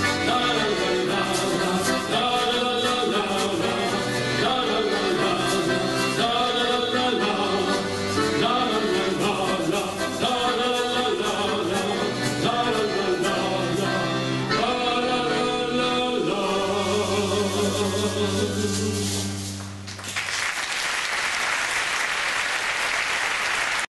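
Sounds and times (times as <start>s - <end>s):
accordion folk music: 0.0s - 19.8s
audience applause: 19.9s - 23.9s.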